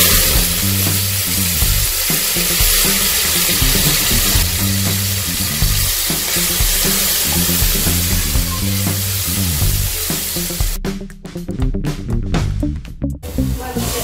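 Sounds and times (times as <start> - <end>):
onions sizzling in oil: 0.0 - 10.8
background music: 0.0 - 14.0.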